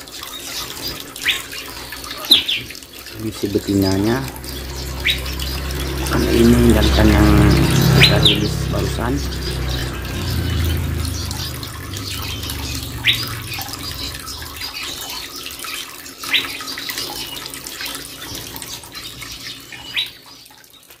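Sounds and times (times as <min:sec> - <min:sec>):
water trickling and dripping: 0:00.0 - 0:21.0
sharp rising chirps: 0:04.0 - 0:14.8.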